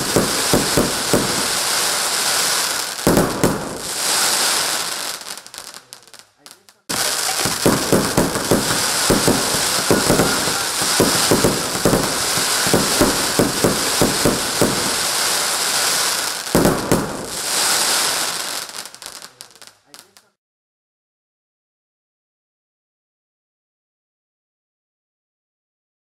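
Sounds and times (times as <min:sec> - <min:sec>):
firework crackling: 0:00.0 - 0:20.3
firework shots: 0:00.0 - 0:20.3.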